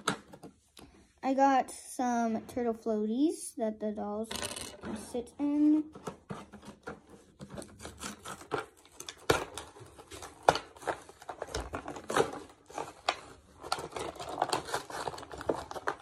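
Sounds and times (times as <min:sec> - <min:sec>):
toy pieces clicking and knocking: 0:04.3 - 0:04.9
plastic packaging crinkling: 0:07.6 - 0:16.0.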